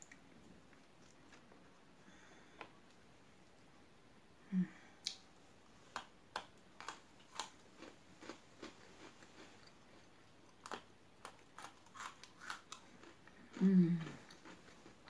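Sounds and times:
crunchy chewing: 5.9 - 15.0.

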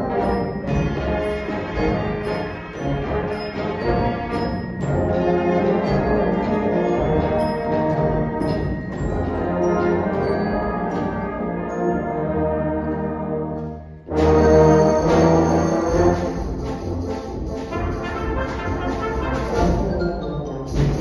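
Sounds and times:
concert band playing: 14.1 - 21.0.

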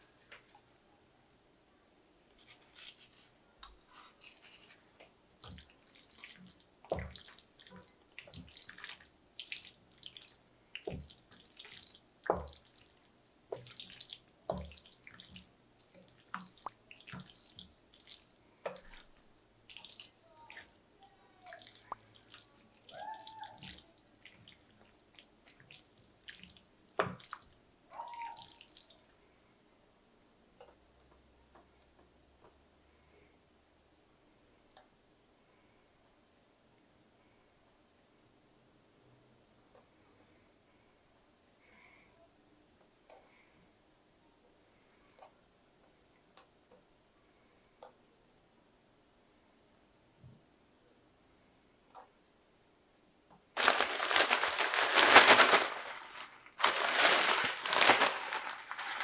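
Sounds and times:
wooden spoon stirring sticky pasta: 2.4 - 20.7.

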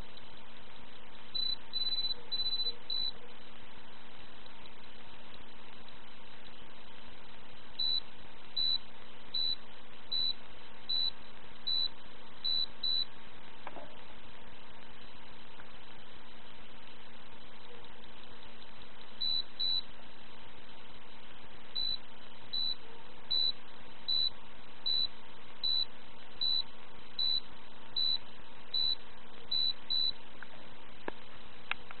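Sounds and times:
buzzer beeps: 1.4 - 3.1, 7.8 - 8.0, 8.6 - 8.8, 9.4 - 11.1, 11.7 - 13.1, 19.2 - 19.8, 21.8 - 22.0, 22.6 - 24.3, 24.9 - 26.6, 27.2 - 30.2.

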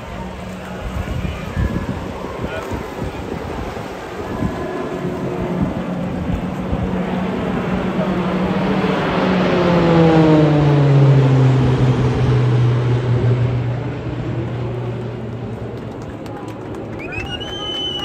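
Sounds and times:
propeller plane flying past: 0.0 - 18.0.

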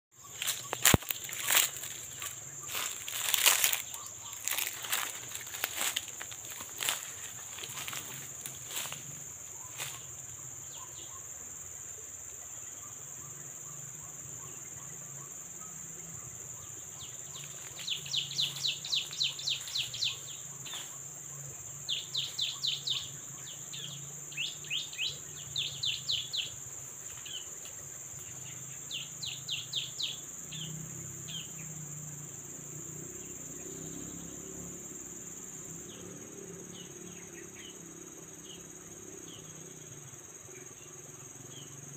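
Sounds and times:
insects droning: 0.1 - 41.9.

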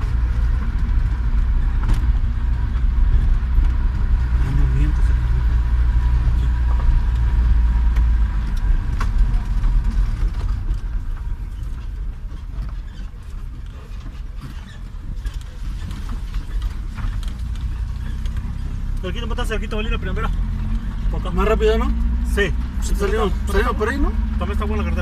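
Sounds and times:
engine and tyre rumble on gravel: 0.0 - 25.0
small knocks and rattles: 6.6 - 19.1.

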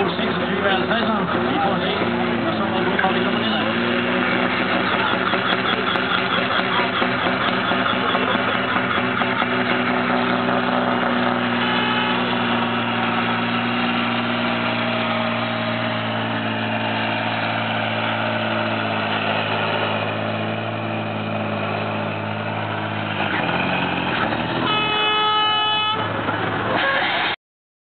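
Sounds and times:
tractor diesel engine under load: 0.0 - 27.4
horn: 24.6 - 26.0.

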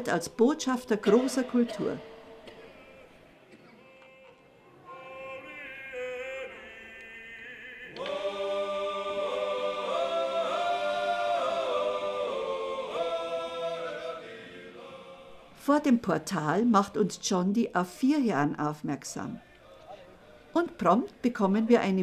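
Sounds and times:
choir singing harmonized chords: 1.0 - 15.6.

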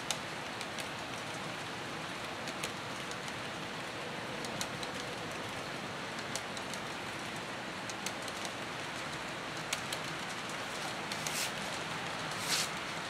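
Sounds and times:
model train wheels hissing on rails: 11.1 - 12.8.

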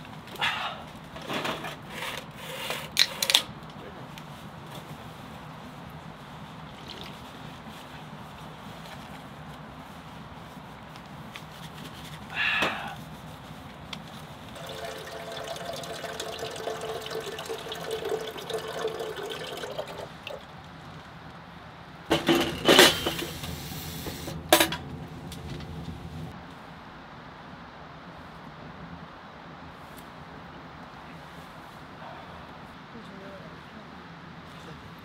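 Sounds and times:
water pouring into metal tank: 14.6 - 20.5
metal tank clanking: 22.1 - 23.4.

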